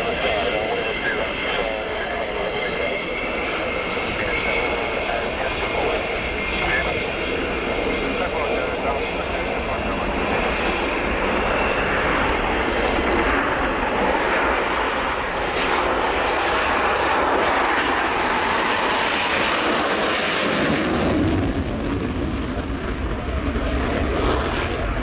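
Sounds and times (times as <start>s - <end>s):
jet engine roar: 0.0s - 25.0s.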